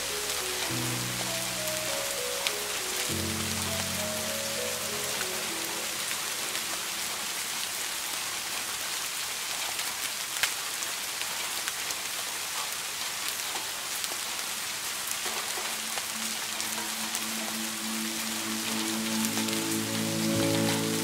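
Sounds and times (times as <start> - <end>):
rain drop ticks: 0.0 - 6.9, 13.3 - 21.0
rain falling: 0.0 - 21.0.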